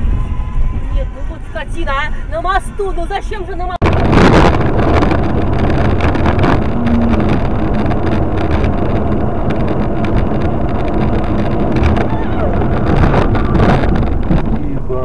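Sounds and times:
car road and engine rumble: 0.0s - 15.0s
wind buffeting microphone: 0.0s - 15.0s.

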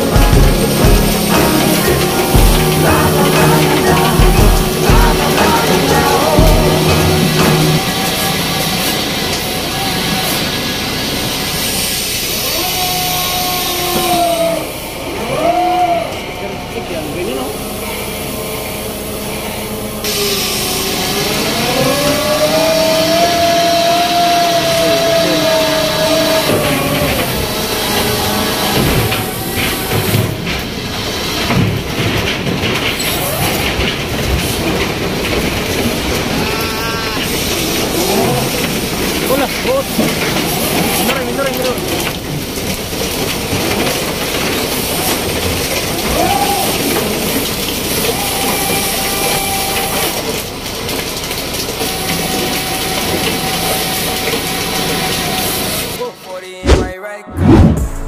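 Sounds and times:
deck machinery rumbling and clattering: 0.0s - 9.6s, 25.8s - 36.4s
deck machinery rumbling: 0.0s - 10.2s
metallic clatter and squeals: 20.1s - 56.0s.

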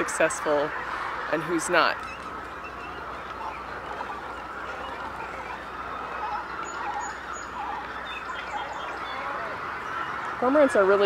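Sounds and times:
din of birds calling: 0.0s - 11.0s
short repeated bird calls: 2.0s - 10.4s.

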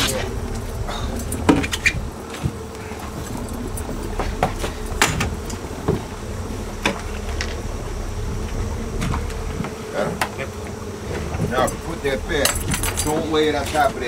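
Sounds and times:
boat engine humming: 0.0s - 14.0s.

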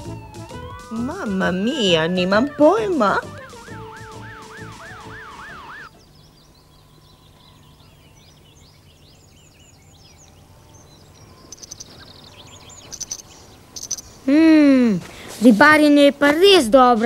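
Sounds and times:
fire engine siren wailing: 0.0s - 5.9s
insects chirping: 0.0s - 14.3s
birds chirping: 0.0s - 17.0s.

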